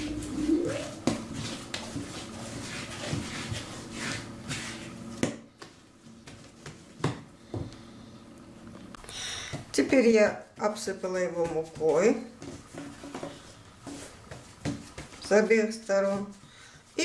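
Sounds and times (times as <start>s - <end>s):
hands kneading dough: 0.0s - 7.8s, 9.4s - 17.0s
dull thumps of dough: 9.5s - 15.5s.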